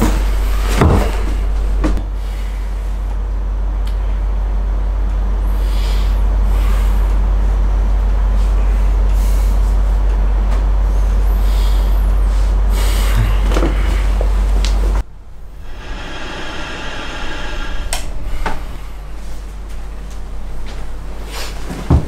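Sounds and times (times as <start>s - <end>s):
deep rumbling drone with hiss: 0.0s - 22.0s
airy whooshes: 15.4s - 20.0s.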